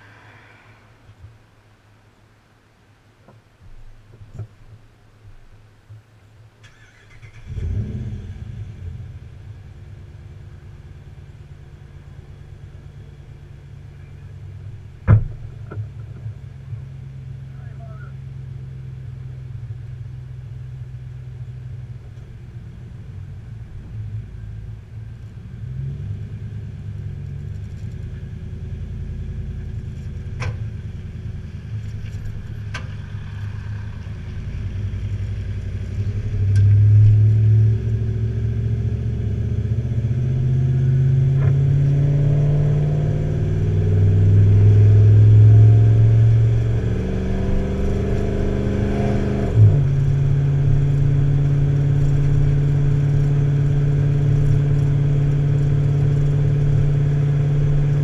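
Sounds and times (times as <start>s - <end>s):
vehicle engine running: 7.4s - 58.0s.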